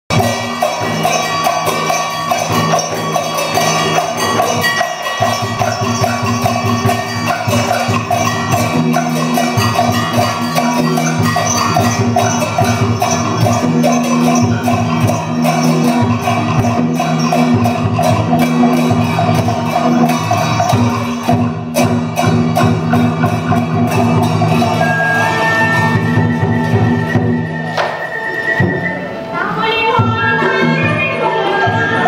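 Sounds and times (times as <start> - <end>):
drums and percussion: 0.0 - 32.0
steady held instrument tones: 22.2 - 32.0.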